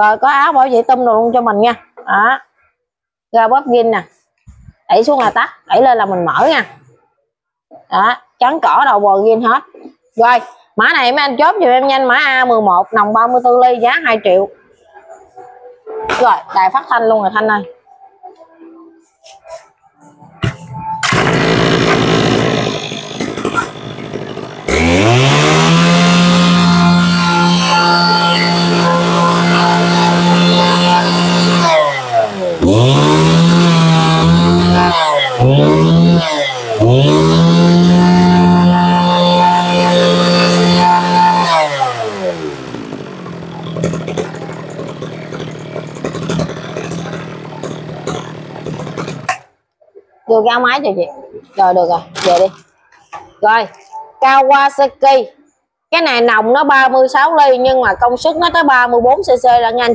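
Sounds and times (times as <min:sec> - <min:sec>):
brush-cutter engine revving: 0:21.0 - 0:49.5.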